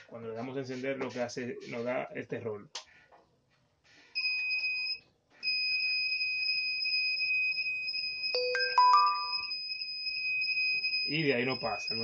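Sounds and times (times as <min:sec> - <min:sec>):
high steady beep: 0:07.1 - 0:12.0
short lower tones: 0:08.4 - 0:09.5.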